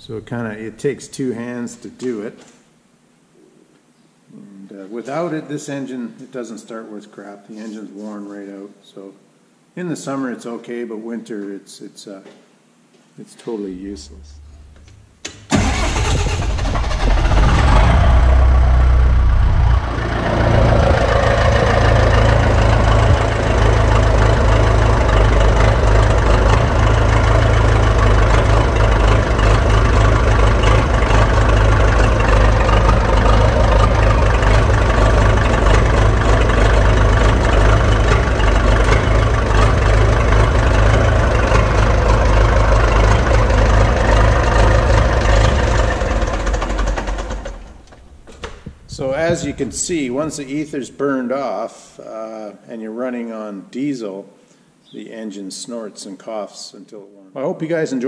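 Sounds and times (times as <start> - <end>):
diesel engine cranking: 14.2 - 50.4
diesel engine idling roughly: 15.5 - 47.9.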